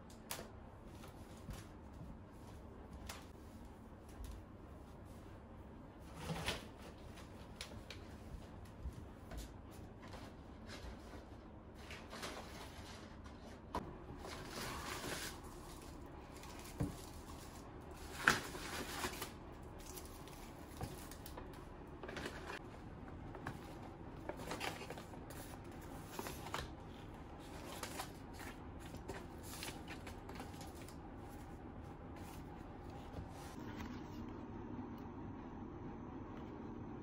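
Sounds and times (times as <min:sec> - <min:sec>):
packaging rustling and crinkling: 0:11.7 - 0:22.6, 0:23.2 - 0:31.5.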